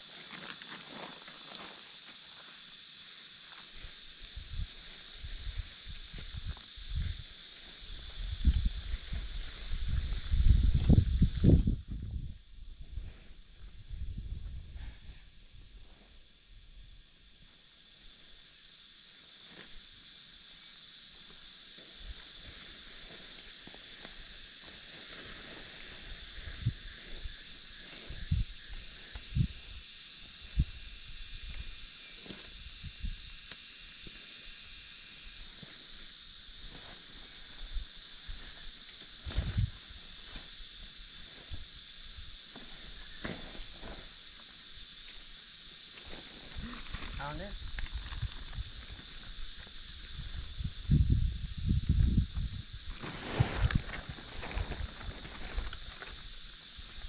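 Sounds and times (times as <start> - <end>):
high-pitched insect drone: 0.0 - 57.0.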